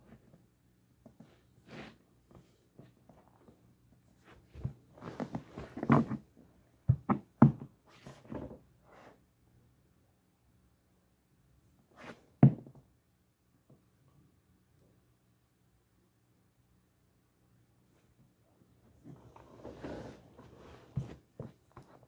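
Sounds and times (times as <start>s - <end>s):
skates knocking and rustling: 4.4s - 6.3s, 6.9s - 8.6s, 19.2s - 22.0s.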